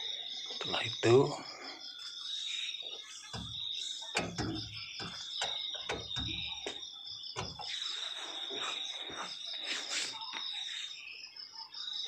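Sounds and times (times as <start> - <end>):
high-pitched insect trill: 0.0 - 12.0
low thumps: 3.4 - 6.8.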